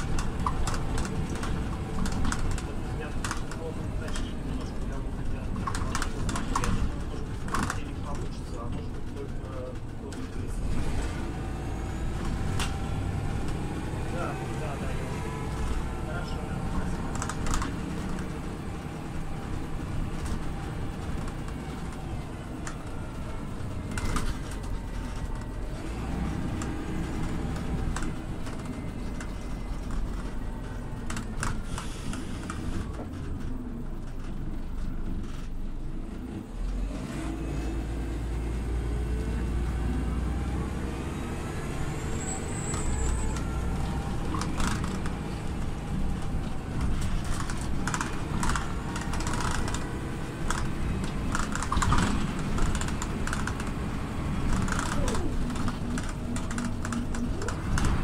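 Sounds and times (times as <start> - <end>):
clicks and rattles: 0.0 - 10.5, 16.8 - 18.4, 43.3 - 58.0
bus engine drone: 0.0 - 58.0
engine whine: 0.0 - 58.0.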